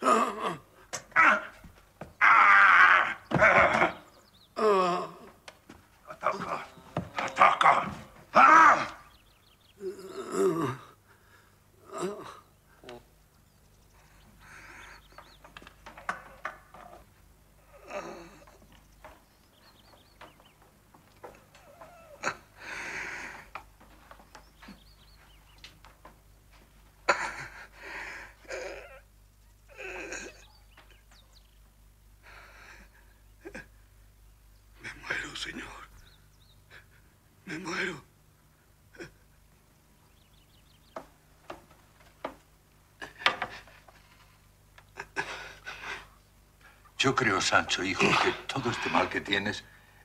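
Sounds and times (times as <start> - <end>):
movement sounds: 5.2 - 9.4, 12.7 - 32.0
man gasping and heaving: 22.0 - 23.6
person breathing: 22.6 - 23.5.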